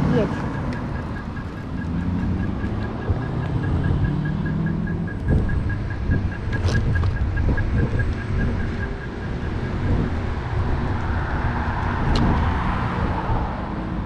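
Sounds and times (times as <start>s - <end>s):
crossing signal beeping: 0.0s - 11.1s
knocks from bumps: 1.0s - 9.1s
wind on microphone: 4.7s - 14.0s
scooter wheels rumbling on pavement: 5.1s - 14.0s.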